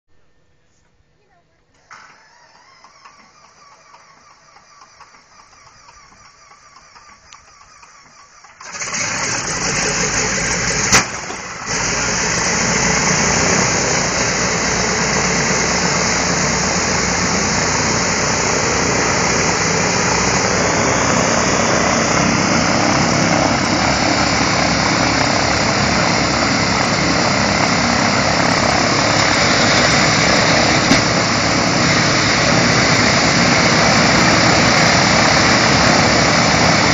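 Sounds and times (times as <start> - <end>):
faint engine starter whine: 1.7 - 36.9
radial aircraft engine running: 2.9 - 36.9
sharp engine pop: 30.8 - 31.3.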